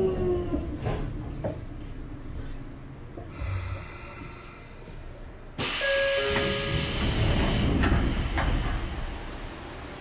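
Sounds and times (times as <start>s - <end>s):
compressed air hissing from train: 5.6s - 9.0s.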